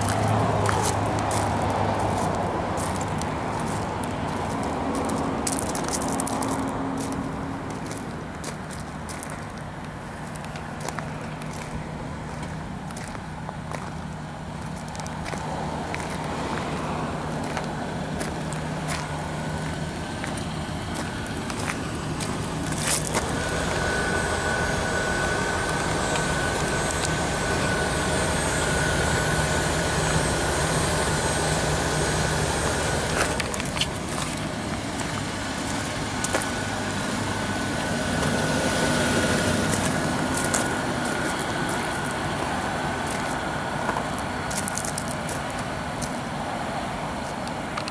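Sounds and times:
engine idling: 0:00.0 - 0:47.9
thin steady whine: 0:07.2 - 0:47.9
light clicks and crunches: 0:33.2 - 0:36.5, 0:43.0 - 0:46.2.

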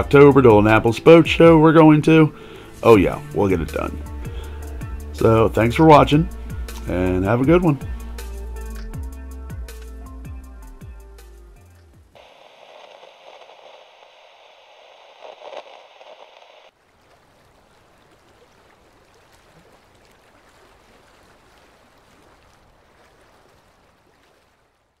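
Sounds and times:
faint steady rushing noise: 0:12.2 - 0:16.7
static-like glitch hiss: 0:12.2 - 0:16.7.

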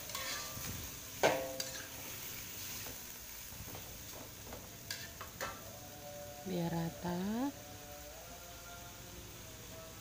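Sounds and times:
spatula clanging on wok: 0:00.0 - 0:03.0, 0:03.6 - 0:05.7
spatula tapping and scraping wok: 0:00.0 - 0:05.7.

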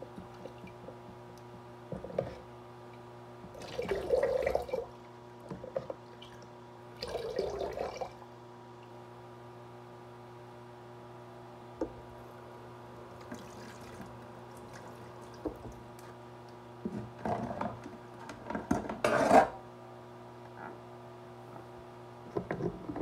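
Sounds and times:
steady low hum: 0:00.0 - 0:23.0
water sloshing and splashing: 0:13.2 - 0:15.9.

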